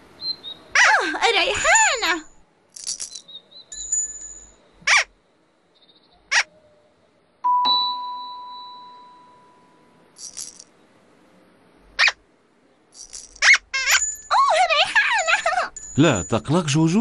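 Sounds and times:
bell-like chime: 0:07.5 - 0:09.9, 0:15.8 - 0:17.0.

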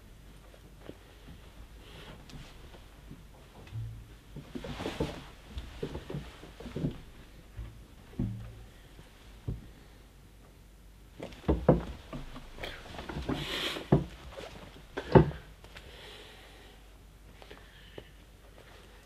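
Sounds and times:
dull handling thumps: 0:02.2 - 0:09.8, 0:11.2 - 0:15.5.

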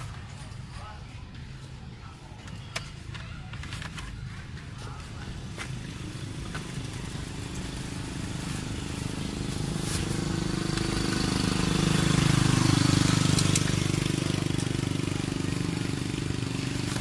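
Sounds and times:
vehicle engine running: 0:03.6 - 0:17.0.

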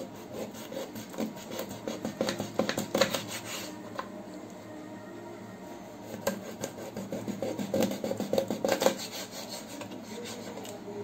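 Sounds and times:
knife sawing through fish: 0:00.0 - 0:03.7, 0:06.0 - 0:10.6.

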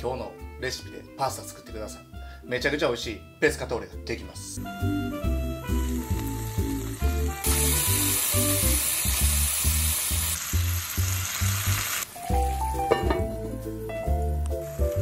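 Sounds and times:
background music with steady beat: 0:00.0 - 0:09.9, 0:12.2 - 0:15.0
food sizzling in a pan: 0:05.4 - 0:13.4, 0:14.5 - 0:15.0.

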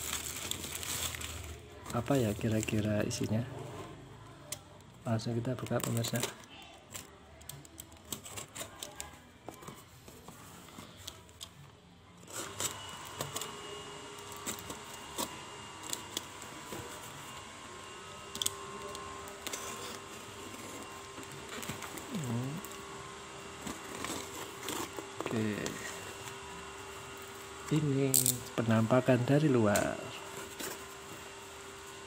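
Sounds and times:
faint multi-tone hum: 0:00.0 - 0:32.0
box cutter cutting cardboard parcel: 0:12.2 - 0:31.8.

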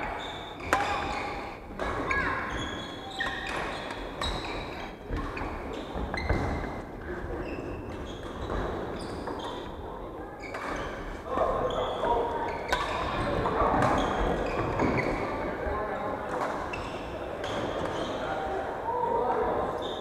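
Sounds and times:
shoes squeaking on wooden floor: 0:07.4 - 0:09.8, 0:10.4 - 0:15.5.

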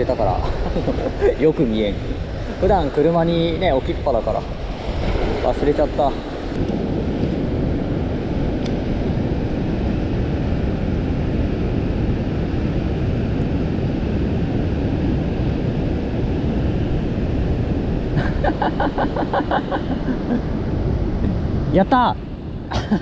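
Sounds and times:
surf on rocky shore: 0:00.0 - 0:10.0, 0:18.0 - 0:23.0
wind buffeting microphone: 0:00.0 - 0:23.0.

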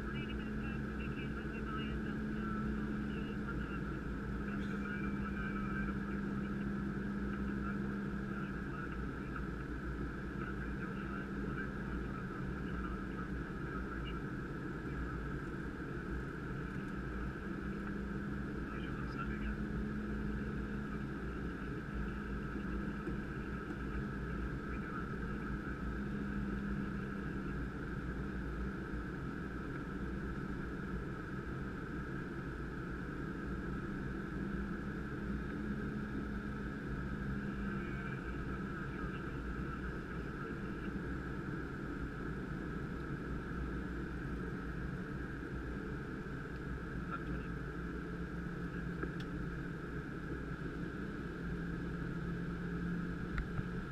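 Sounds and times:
jet cockpit rush and hum: 0:00.0 - 0:53.9.

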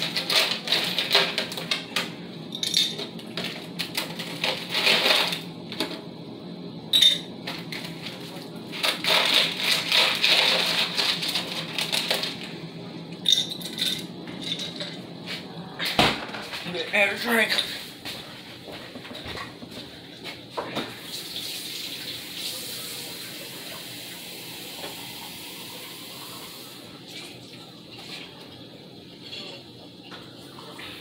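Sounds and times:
wrapper crinkling: 0:08.8 - 0:12.5.

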